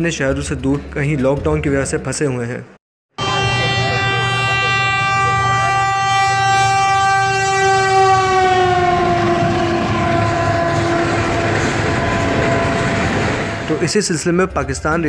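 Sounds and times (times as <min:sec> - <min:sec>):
locomotive horn: 0:03.1 - 0:13.9
train coaches running over rails: 0:03.2 - 0:15.0.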